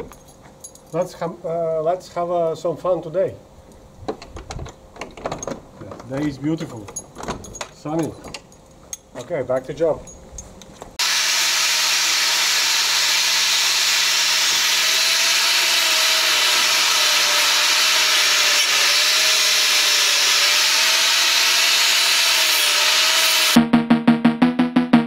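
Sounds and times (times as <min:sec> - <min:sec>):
angle grinder sanding metal: 0:11.0 - 0:23.6.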